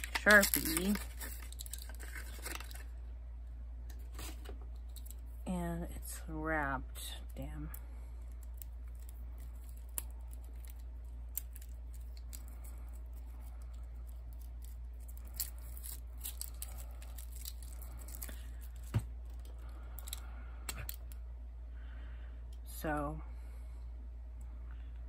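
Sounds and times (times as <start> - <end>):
plastic wrapping crinkling and tearing: 0.0 - 3.0, 8.3 - 21.1
steady low hum: 0.0 - 25.0.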